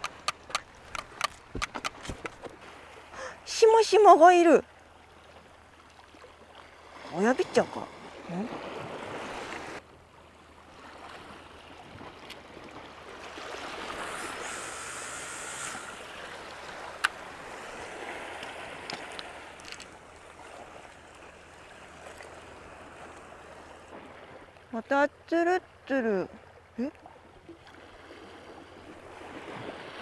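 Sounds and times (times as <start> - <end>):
sea surf washing: 6.8 - 9.8, 12.9 - 24.5.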